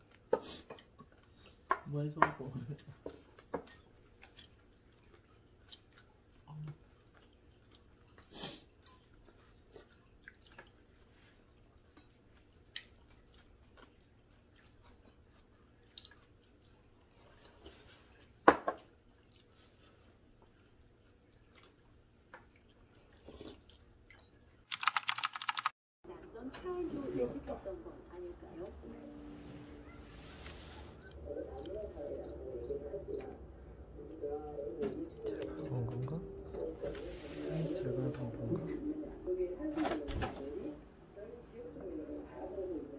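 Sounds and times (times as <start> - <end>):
chewing: 0.1 - 1.6, 2.8 - 18.3, 19.0 - 24.9.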